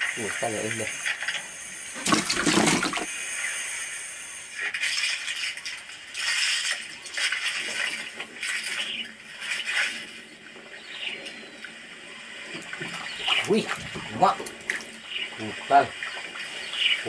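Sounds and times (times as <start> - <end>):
light water splashing: 4.5 - 17.0.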